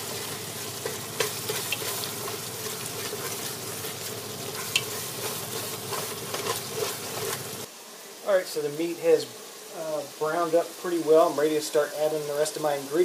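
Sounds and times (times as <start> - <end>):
wooden spoon scraping pot: 0.0 - 7.7
meat sizzling in a pot: 0.0 - 13.0.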